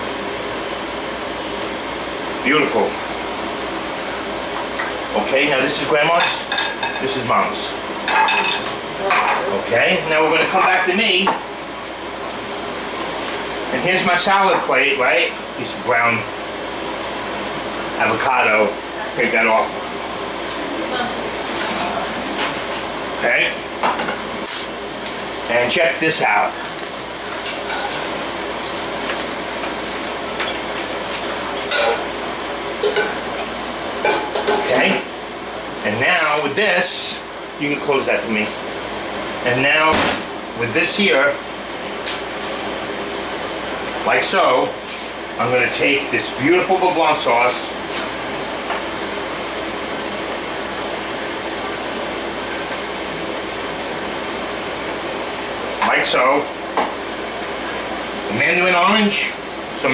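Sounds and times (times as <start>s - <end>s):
ventilation fan rushing: 0.0s - 59.9s
clink on plate: 36.2s - 36.6s.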